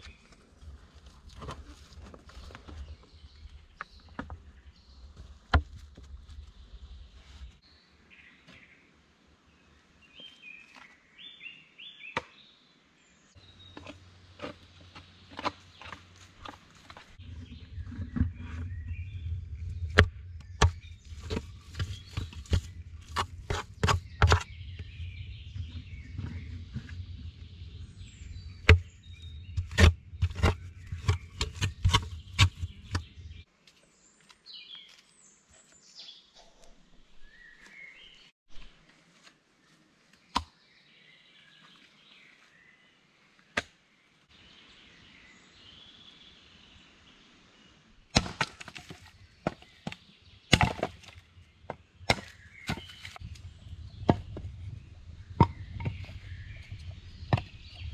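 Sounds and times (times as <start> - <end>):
birds chirping: 2.3 - 38.9, 39.6 - 57.9
low rumble: 17.2 - 31.3.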